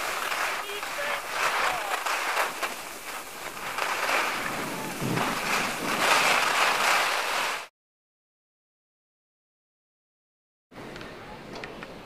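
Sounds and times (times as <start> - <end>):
skis scraping over snow: 0.0 - 7.7.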